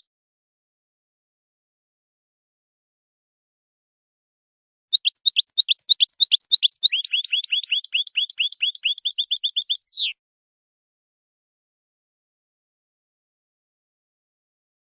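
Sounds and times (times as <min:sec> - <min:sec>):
goldfinch twittering and trilling: 0:04.9 - 0:10.1.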